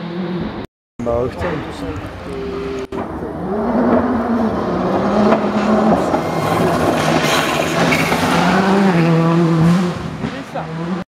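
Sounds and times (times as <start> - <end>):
rally car engine approaching: 0.0 - 11.0.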